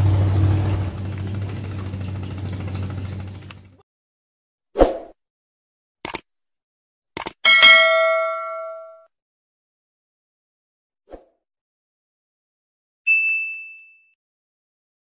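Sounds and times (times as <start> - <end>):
low mechanical hum: 0.0 - 3.8
quick double click: 6.0 - 6.2, 7.2 - 7.4.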